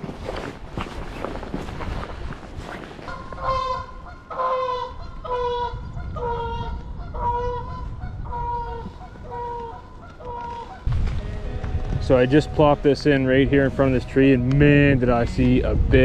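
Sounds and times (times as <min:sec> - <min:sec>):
goose honking: 0:03.1 - 0:14.2.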